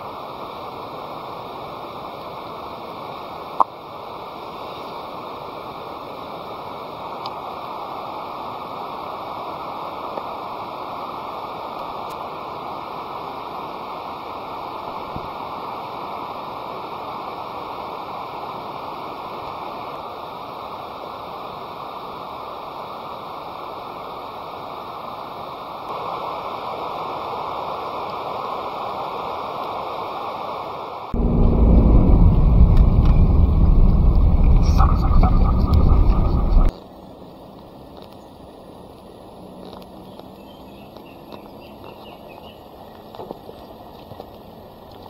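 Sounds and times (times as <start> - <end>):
steady rushing noise: 25.8 - 36.7
loud low rumble: 31.2 - 36.7.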